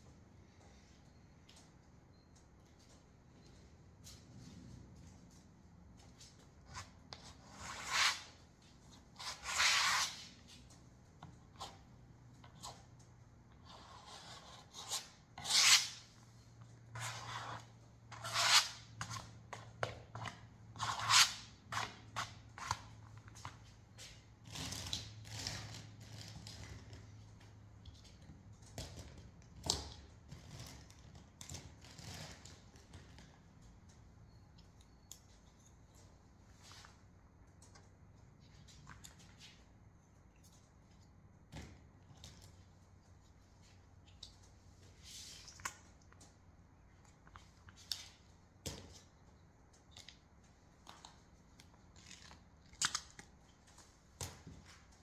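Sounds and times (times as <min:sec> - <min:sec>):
block rasping across canvas: 0:13.6 - 0:16.1, 0:16.9 - 0:19.3.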